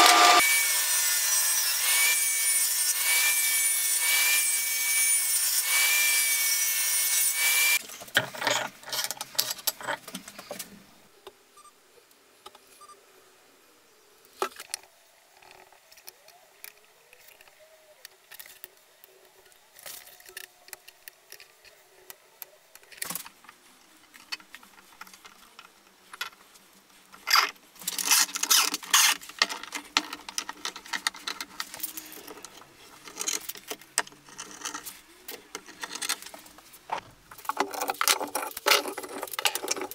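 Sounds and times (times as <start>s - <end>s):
table saw ripping wood: 0.0s - 7.8s, 27.3s - 29.3s
handling wood strips: 18.1s - 39.9s.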